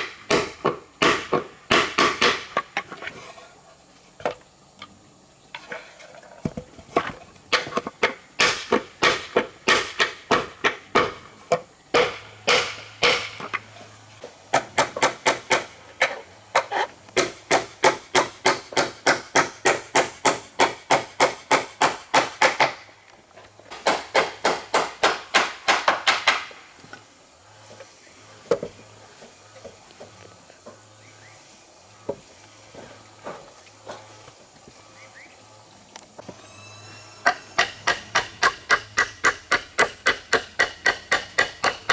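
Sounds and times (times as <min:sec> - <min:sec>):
hammer driving nails into wood: 0:11.9 - 0:13.5.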